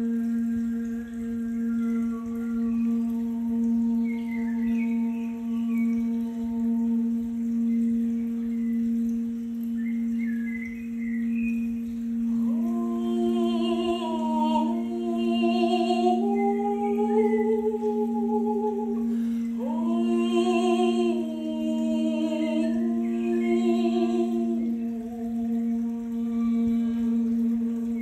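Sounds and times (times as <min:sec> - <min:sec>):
singing bowl ringing: 0:00.0 - 0:28.0
woman singing wordless phrases: 0:12.3 - 0:28.0.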